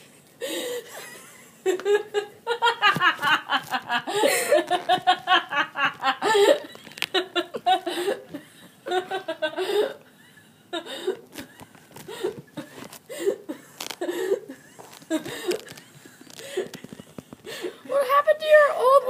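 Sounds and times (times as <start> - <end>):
catches of breath: 0.4 - 0.9, 9.6 - 14.6, 15.2 - 17.9
girls laughing uncontrollably: 0.8 - 17.9.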